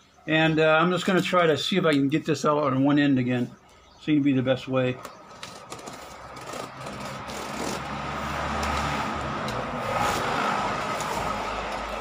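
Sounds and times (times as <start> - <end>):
vehicle passing with low rumble: 5.2 - 12.0.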